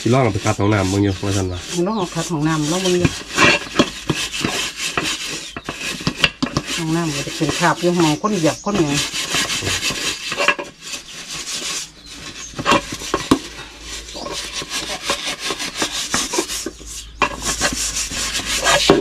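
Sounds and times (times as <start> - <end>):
scouring pad scrubbing a pot: 0.0 - 19.0.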